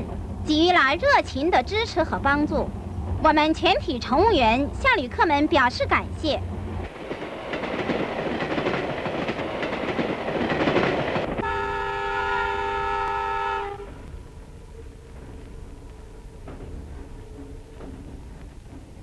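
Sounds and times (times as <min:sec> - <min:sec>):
steam train rushing noise: 0:00.0 - 0:19.0
steam locomotive whistle: 0:11.4 - 0:14.0
low rumble: 0:13.7 - 0:19.0.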